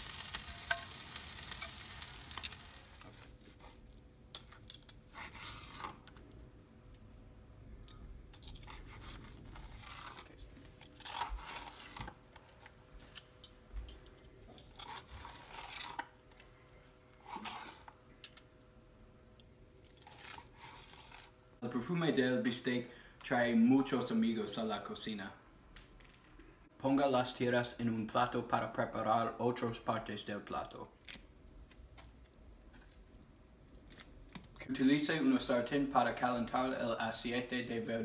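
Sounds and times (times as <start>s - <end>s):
steak sizzling on a grill: 0.0s - 3.3s.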